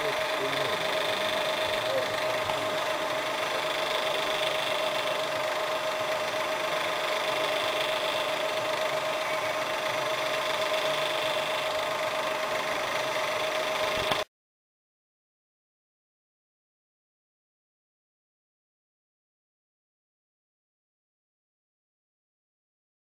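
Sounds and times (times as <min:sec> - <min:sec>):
electric gear motor whirring: 0:00.0 - 0:14.2.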